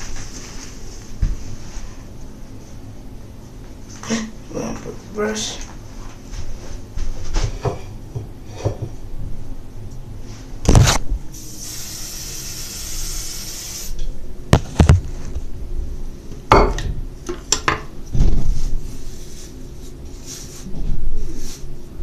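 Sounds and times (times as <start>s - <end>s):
steady hiss: 11.3s - 14.0s.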